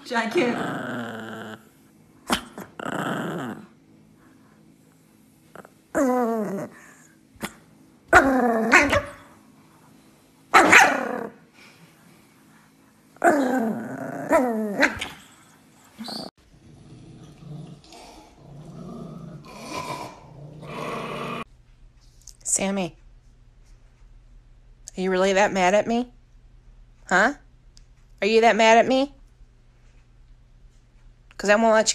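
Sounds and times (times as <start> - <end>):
small dog growling and barking: 0.3 - 3.8, 5.5 - 9.4, 10.5 - 11.4, 13.2 - 21.5.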